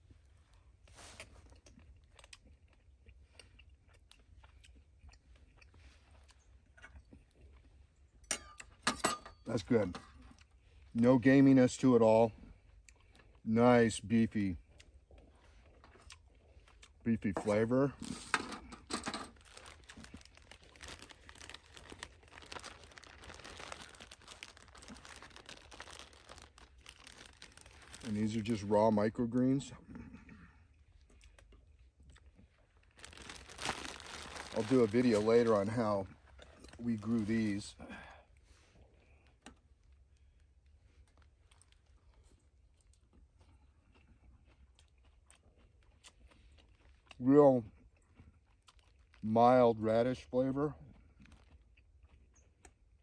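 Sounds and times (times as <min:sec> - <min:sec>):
faint chewing: 0:00.0 - 0:08.8, 0:10.0 - 0:11.0, 0:12.3 - 0:13.5, 0:14.1 - 0:28.6, 0:29.8 - 0:37.5, 0:38.2 - 0:49.2, 0:50.7 - 0:53.0
plastic bag crinkling: 0:18.0 - 0:29.0, 0:32.7 - 0:37.7.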